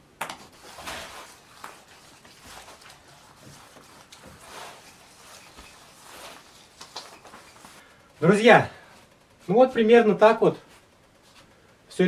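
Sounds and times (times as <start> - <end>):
wet rag scrubbing wooden wall: 0.4 - 7.8.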